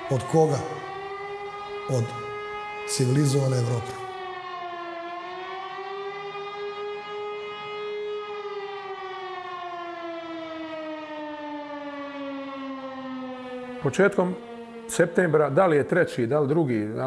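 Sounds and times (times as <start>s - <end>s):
air-raid siren wailing: 0.0s - 17.0s.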